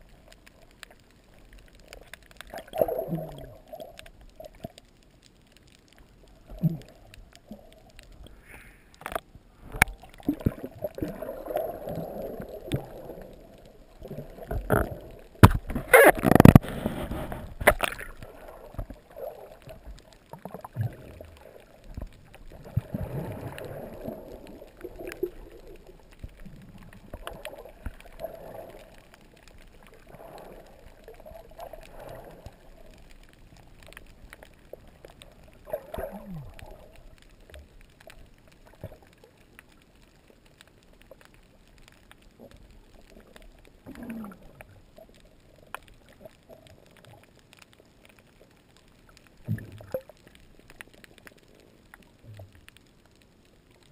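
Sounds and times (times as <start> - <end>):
faint clicks: 0.0 - 53.9
water moving underwater: 0.0 - 53.9
gurgling bubble bursts: 2.5 - 4.0, 9.9 - 21.7, 22.4 - 29.0, 35.6 - 37.0, 43.8 - 44.6.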